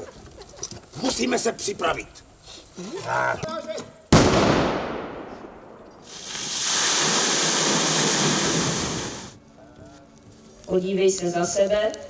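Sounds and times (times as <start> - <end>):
sharp bang: 4.2 - 6.1.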